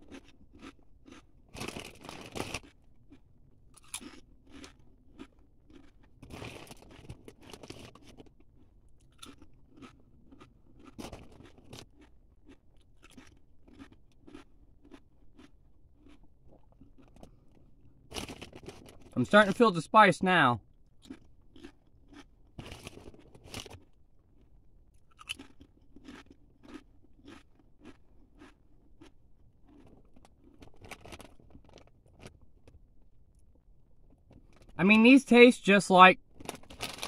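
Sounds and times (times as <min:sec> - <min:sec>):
person chewing crunchy chips: 0:00.0 - 0:19.8, 0:20.6 - 0:34.8, 0:36.2 - 0:37.0.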